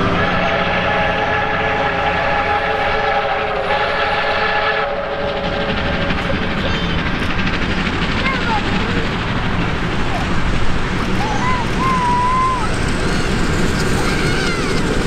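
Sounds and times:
steam locomotive whistle: 0.0 - 5.2, 11.3 - 13.3
steam train running: 0.0 - 15.0.

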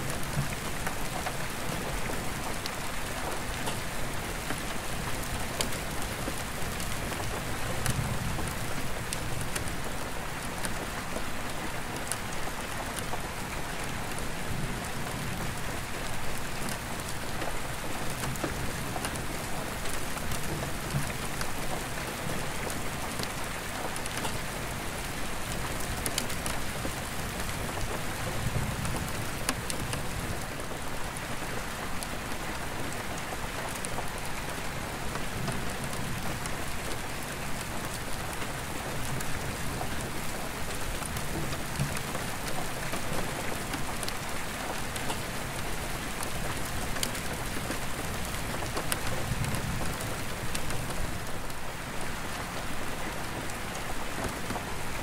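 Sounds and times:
rain on a skylight: 0.0 - 55.0.

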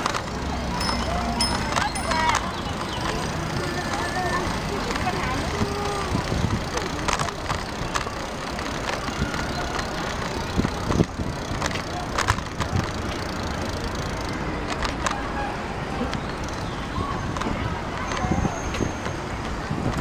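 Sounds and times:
bike clicks and rattles: 0.0 - 15.4, 16.0 - 20.0
bicycle tyres rolling: 0.0 - 20.0
wind noise: 16.9 - 20.0.

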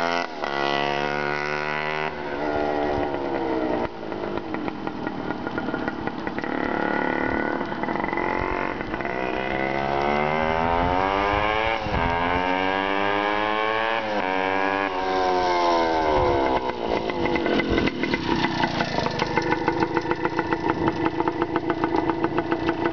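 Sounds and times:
two-stroke motorcycle engine: 0.0 - 22.9.

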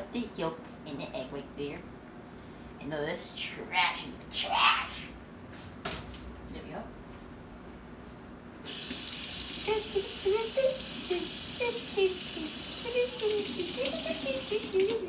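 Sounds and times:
faucet running into metal sink: 8.7 - 15.0
water splashing over hands: 13.0 - 15.0.

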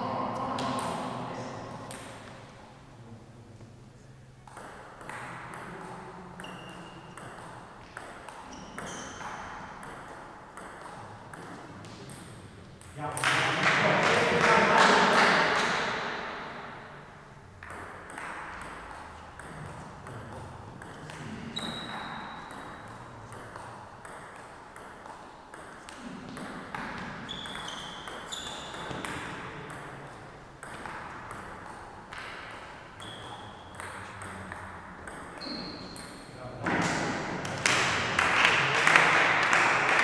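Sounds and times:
shoe squeaks: 6.4 - 7.2, 8.4 - 9.7, 21.5 - 22.8, 27.2 - 29.0, 33.0 - 33.8, 35.4 - 36.1.

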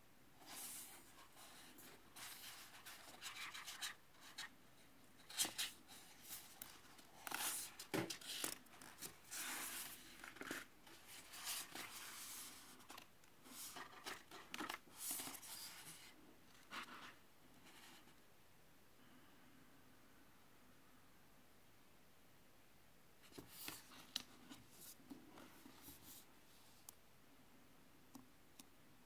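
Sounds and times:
book pages rustling: 0.4 - 4.5, 5.2 - 17.2, 23.3 - 26.3.

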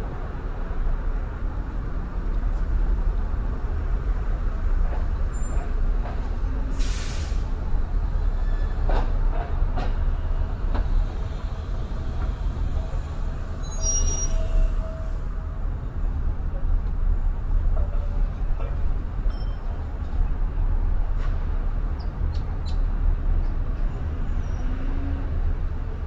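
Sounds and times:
traffic road rumble: 0.0 - 26.0
bus air brakes hissing: 6.6 - 7.7.

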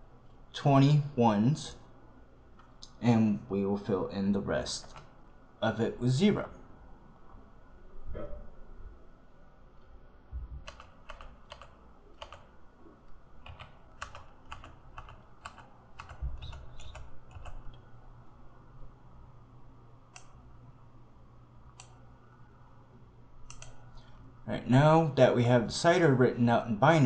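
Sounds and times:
keyboard typing: 4.8 - 5.2, 10.6 - 17.9, 23.4 - 24.1.

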